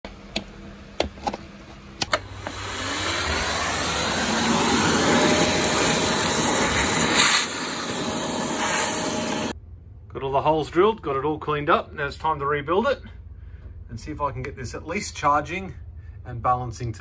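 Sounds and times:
vacuum cleaner running: 2.1 - 9.6.

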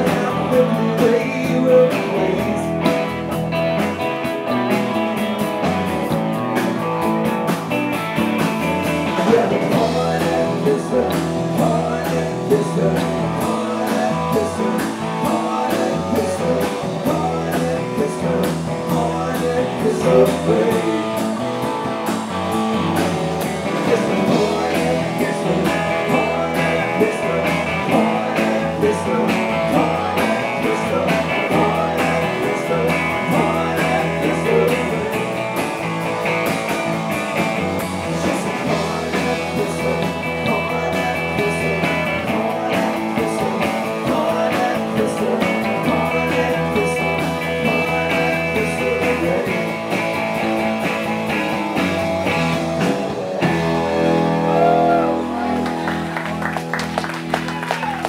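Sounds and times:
person singing: 0.0 - 3.2, 9.0 - 21.6, 23.6 - 35.6, 38.0 - 50.1, 54.3 - 56.0
electric bass: 0.0 - 58.0
electric guitar: 0.0 - 58.0.

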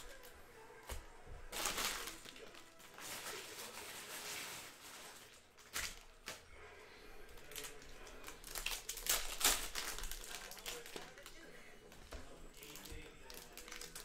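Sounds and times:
cellophane packs crinkling: 1.5 - 6.5, 7.3 - 11.5, 12.5 - 14.0.

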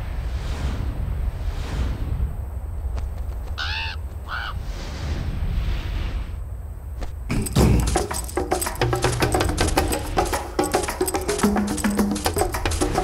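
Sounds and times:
wind hiss: 0.0 - 13.0
crow cawing: 3.6 - 4.6
wood-block percussion music: 7.3 - 13.0.

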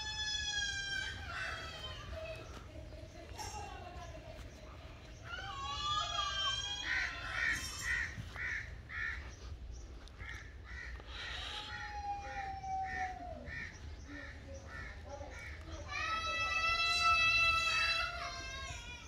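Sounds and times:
crows cawing: 0.0 - 2.4, 5.2 - 9.5, 10.2 - 18.0.

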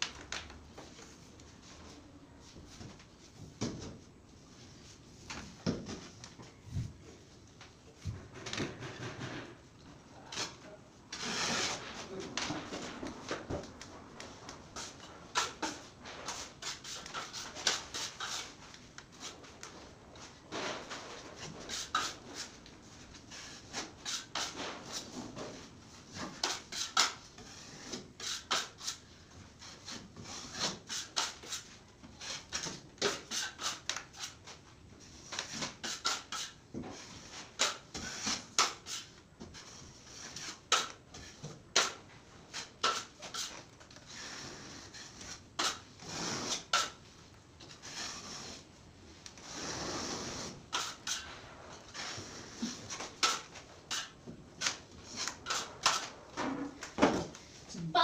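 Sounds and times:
putty knife scraping compound: 10.2 - 12.5, 14.7 - 19.8, 20.6 - 56.8.

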